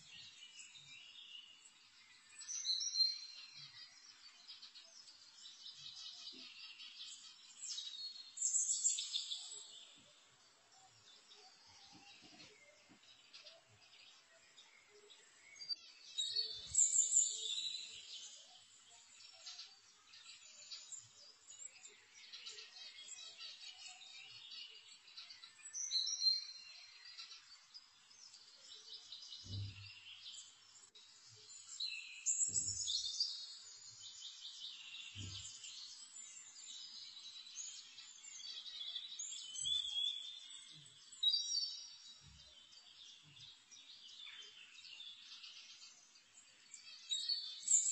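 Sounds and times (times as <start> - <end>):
small birds chirping: 0.0 - 47.9.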